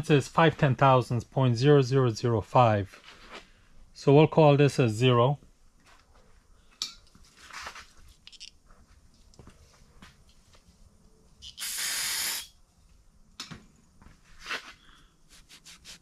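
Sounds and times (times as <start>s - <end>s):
short compressed air hiss: 11.4s - 12.6s.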